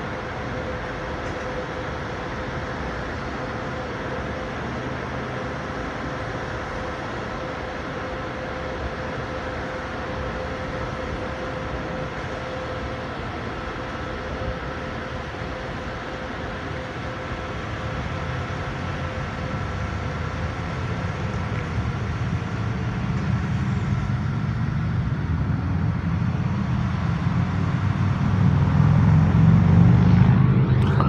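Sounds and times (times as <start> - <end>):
faint whine: 0.0 - 31.0
road traffic: 0.0 - 31.0
vehicle engine rumble: 16.8 - 31.0.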